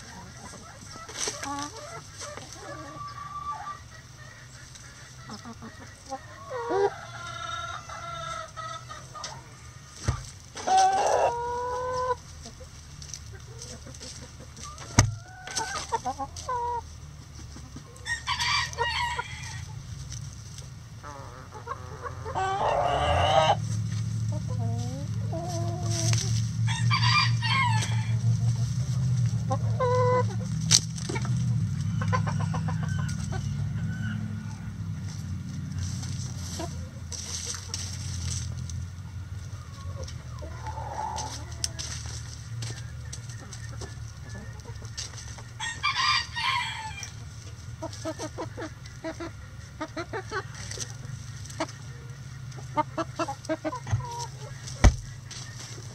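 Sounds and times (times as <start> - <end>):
roosters crowing: 0.0 - 12.3, 13.8 - 16.9, 17.8 - 20.1, 21.0 - 37.9, 39.0 - 48.7
hens clucking: 0.0 - 55.9.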